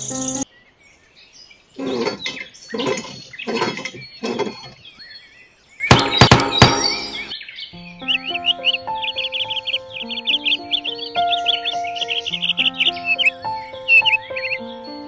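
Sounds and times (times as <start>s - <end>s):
hand pump strokes: 1.8s - 4.8s
high chirping: 5.8s - 15.0s
clattering knocks: 5.9s - 7.3s.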